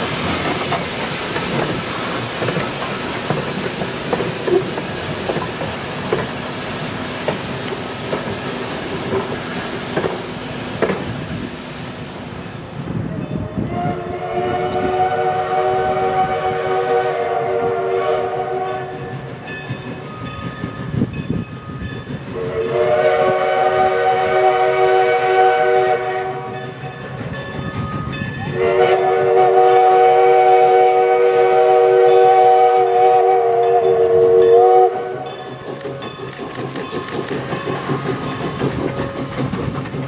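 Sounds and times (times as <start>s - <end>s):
low rumble of train: 0.0s - 40.0s
steam locomotive whistle chord: 13.4s - 19.3s, 22.3s - 26.6s, 28.4s - 35.4s.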